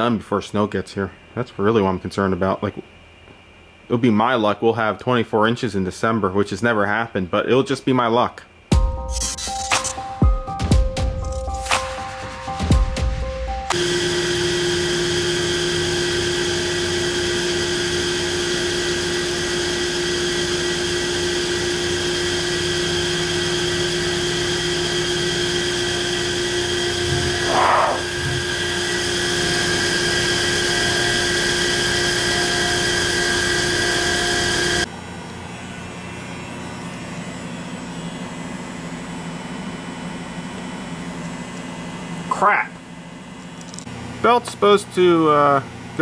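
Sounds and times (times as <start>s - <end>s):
workshop machine whirring: 13.7s - 38.8s.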